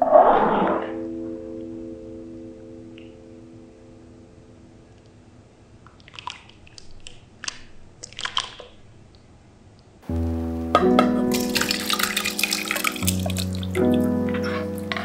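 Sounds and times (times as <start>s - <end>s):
music: 1.0s - 4.7s, 10.0s - 15.0s
wet splats of meat in sauce: 11.3s - 14.0s.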